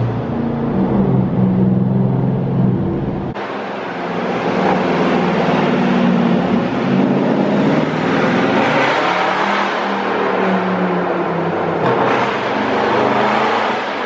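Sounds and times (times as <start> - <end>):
car engine driving through tunnel: 0.0 - 14.0.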